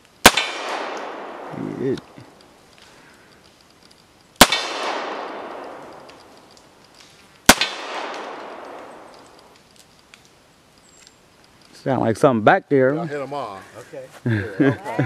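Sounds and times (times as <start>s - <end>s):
handgun shots with echo: 0.2s - 1.5s, 4.4s - 5.8s, 7.5s - 9.1s.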